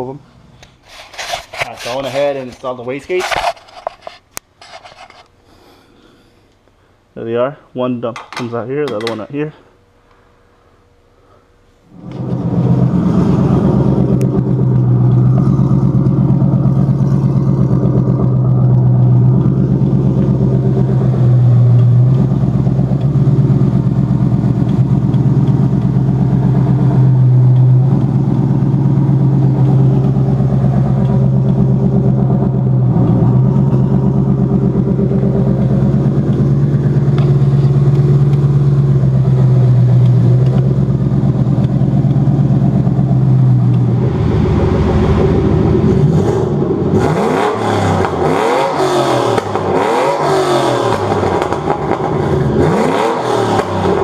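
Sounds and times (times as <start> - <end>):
loud car engine running: 11.9 - 54.0.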